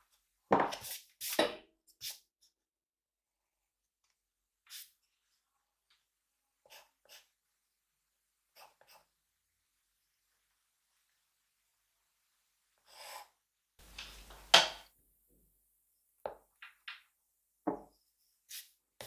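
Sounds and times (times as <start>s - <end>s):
drawing tool scratchy strokes: 6.6s - 7.4s, 8.5s - 9.1s, 12.8s - 13.4s.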